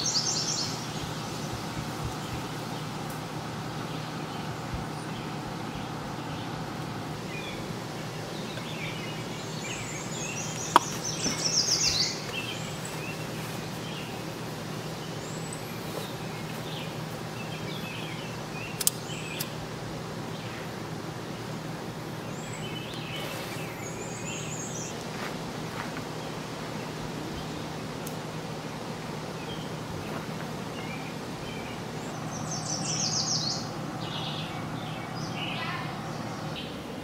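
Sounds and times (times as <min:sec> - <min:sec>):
songbirds chirping: 0:00.0 - 0:37.0
steady low hum: 0:00.0 - 0:37.0
sharp clicks: 0:18.8 - 0:19.6.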